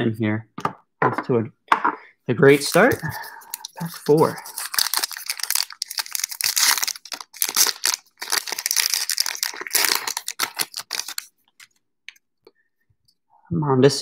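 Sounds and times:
card pack wrapper crinkling and tearing: 0:02.5 - 0:11.8.

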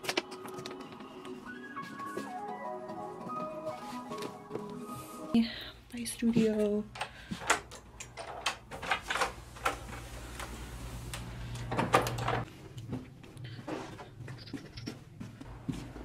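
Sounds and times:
footsteps: 0:00.2 - 0:05.4, 0:06.2 - 0:07.8, 0:12.4 - 0:16.0
door opening and shutting: 0:11.5 - 0:12.5.

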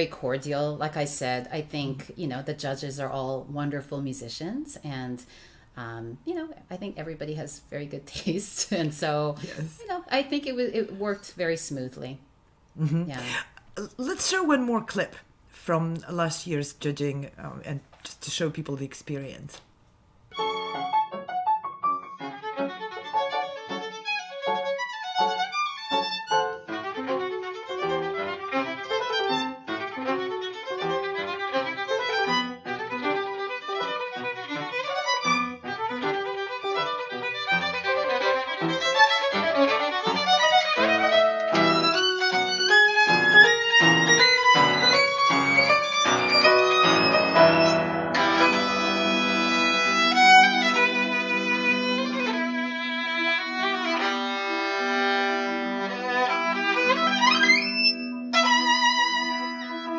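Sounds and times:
piano accompaniment: 0:20.3 - 0:59.9
violin playing quick notes: 0:36.7 - 0:52.9, 0:53.5 - 0:59.9.

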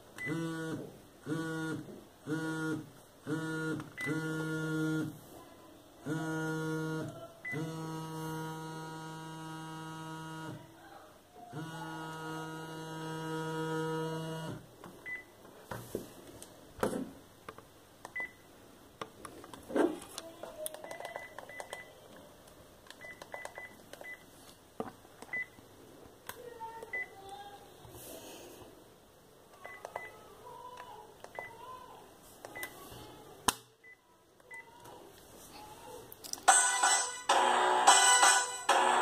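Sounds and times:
high keypad beeps: 0:21.0 - 0:21.9
phone ringtone electronic notes: 0:36.5 - 0:39.0.

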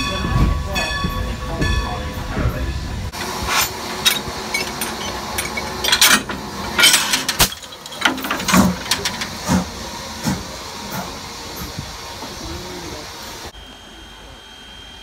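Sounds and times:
steam locomotive hissing: 0:00.0 - 0:15.0
sharp metallic clanks: 0:03.1 - 0:09.7.

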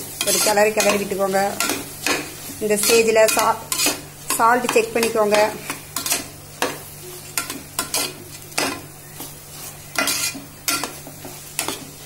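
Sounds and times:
spatula scraping metal pot: 0:00.2 - 0:01.8, 0:02.8 - 0:06.3, 0:09.9 - 0:11.0.

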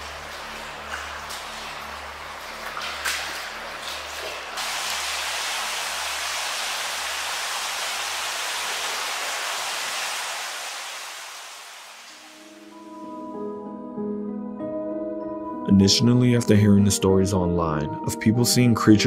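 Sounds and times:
floodwater rushing through tunnel: 0:00.0 - 0:12.8.

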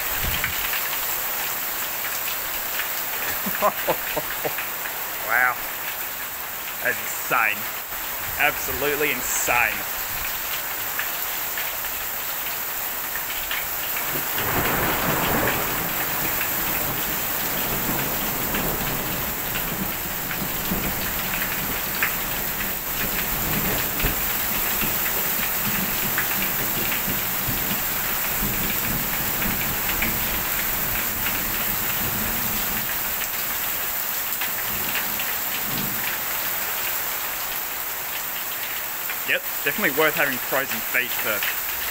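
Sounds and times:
hail and rain on a roof: 0:00.0 - 0:41.9.

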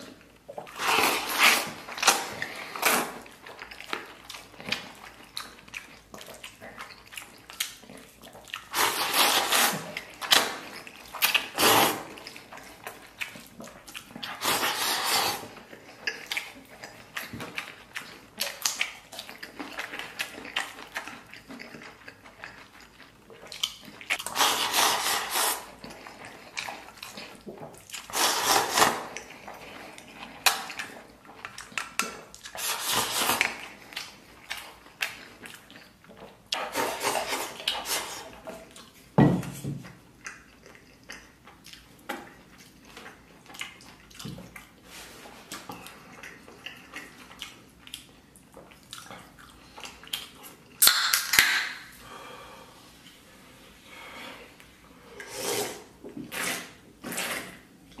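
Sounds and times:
chewing and slurping: 0:00.0 - 0:50.9, 0:52.9 - 0:58.0
sips from a can: 0:55.1 - 0:57.6.

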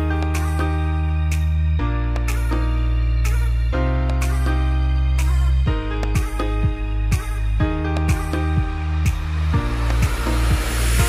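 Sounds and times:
low bass chords: 0:00.0 - 0:11.0
soft beat: 0:05.7 - 0:11.0.

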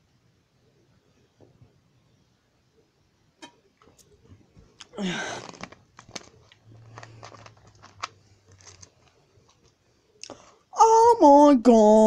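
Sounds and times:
plastic bottle crinkling: 0:03.8 - 0:09.8.

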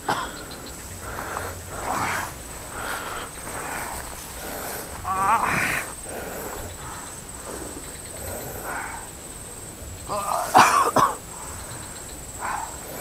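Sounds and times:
man coughing harshly: 0:00.0 - 0:00.5, 0:10.1 - 0:11.2
faint throat sounds: 0:00.0 - 0:13.0.

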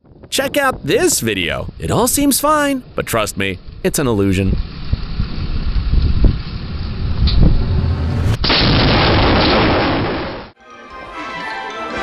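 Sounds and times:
strong wind buffeting microphone: 0:00.0 - 0:09.0.

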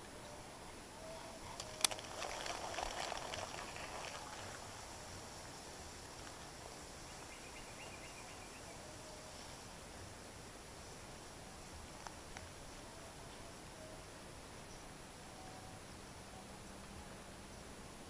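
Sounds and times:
reel spool whirring: 0:01.4 - 0:06.8
fishing reel click: 0:01.6 - 0:04.4.

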